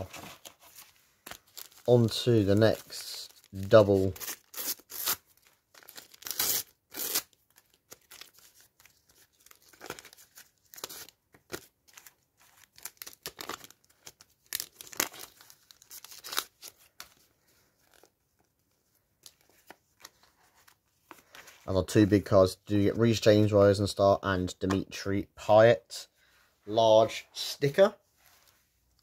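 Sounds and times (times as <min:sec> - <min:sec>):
wrappers ripping and crinkling: 0:00.7 - 0:16.9.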